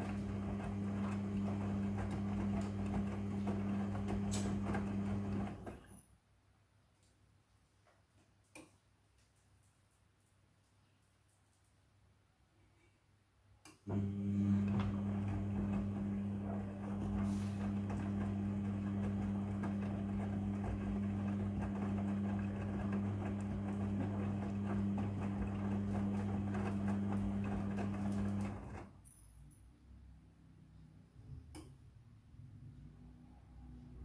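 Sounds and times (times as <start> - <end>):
washing machine motor hum: 0.0 - 6.0, 13.8 - 28.9.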